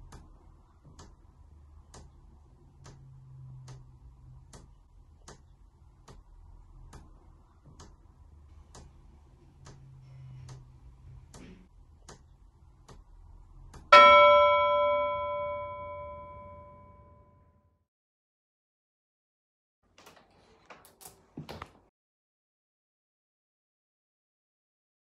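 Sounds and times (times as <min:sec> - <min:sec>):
clock chime ringing: 0:14.0 - 0:17.4.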